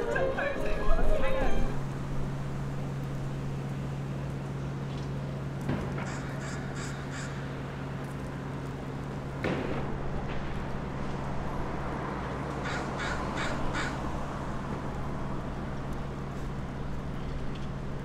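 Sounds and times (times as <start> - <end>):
crow cawing: 6.0 - 7.4, 12.6 - 14.0.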